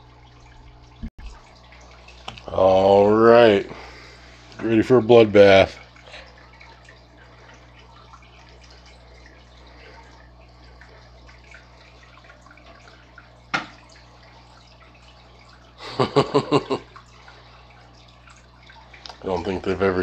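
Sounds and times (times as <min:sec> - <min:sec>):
aquarium water trickling: 0:00.0 - 0:20.0
steady low hum: 0:00.0 - 0:20.0.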